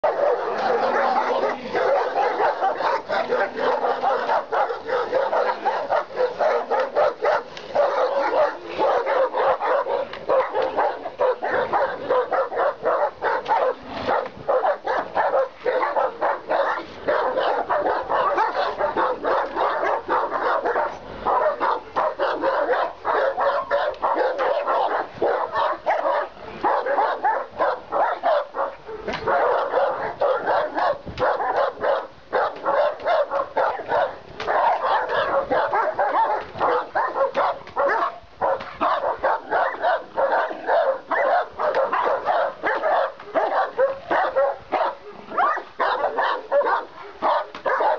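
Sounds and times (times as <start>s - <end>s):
dogs barking rapidly: 0.0s - 47.9s.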